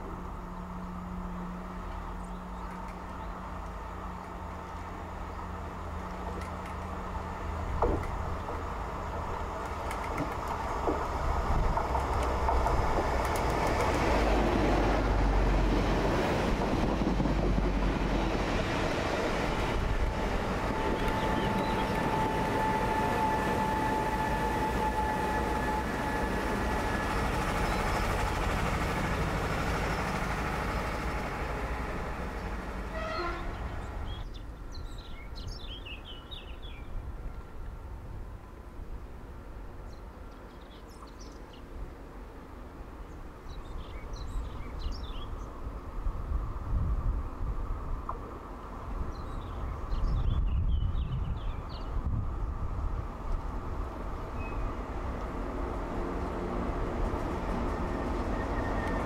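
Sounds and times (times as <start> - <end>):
train wheels on rails: 0.0 - 35.1, 51.3 - 59.0.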